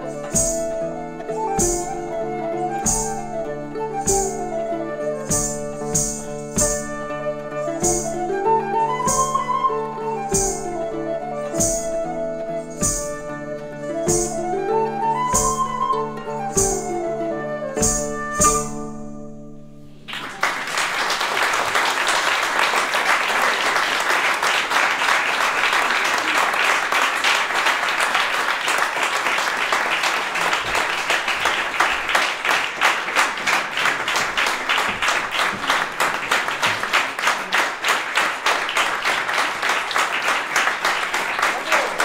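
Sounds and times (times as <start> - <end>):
flute harp and hurdy-gurdy trio: 0.0 - 19.7
audience applauding: 20.0 - 42.0.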